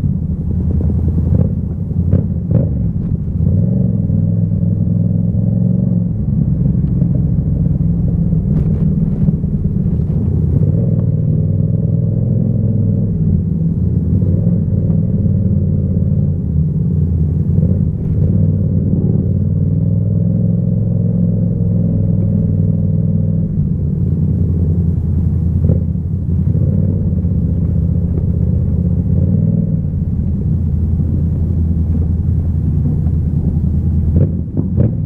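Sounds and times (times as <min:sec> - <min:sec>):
motorcycle engine at low revs: 0:00.0 - 0:35.0.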